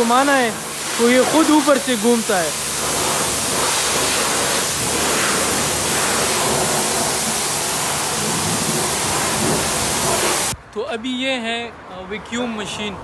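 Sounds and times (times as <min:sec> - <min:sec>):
high-pressure water spraying: 0:00.0 - 0:10.6.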